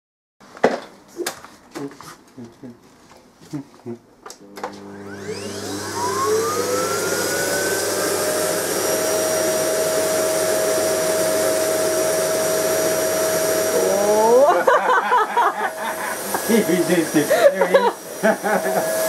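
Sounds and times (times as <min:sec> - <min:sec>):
vacuum cleaner motor whine: 0:04.4 - 0:19.0.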